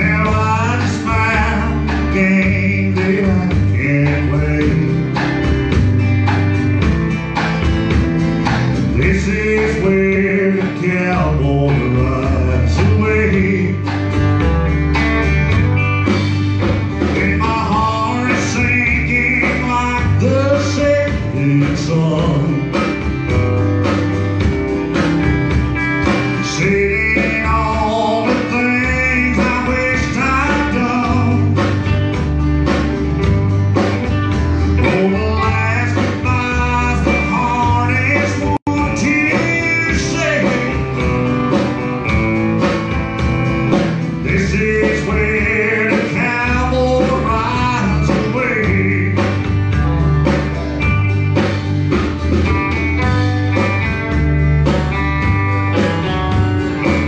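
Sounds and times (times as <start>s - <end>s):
man singing: 0.0s - 5.4s, 8.8s - 14.1s, 17.0s - 23.0s, 26.0s - 31.9s, 34.5s - 42.2s, 44.0s - 49.8s
live country band playing: 0.0s - 57.0s.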